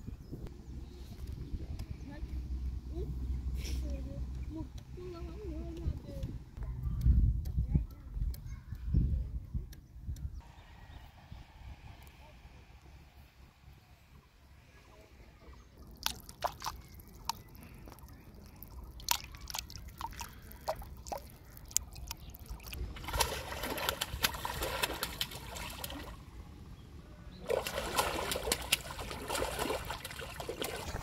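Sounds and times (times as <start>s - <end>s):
fish splashing at water surface: 15.8s - 26.3s, 27.4s - 31.0s.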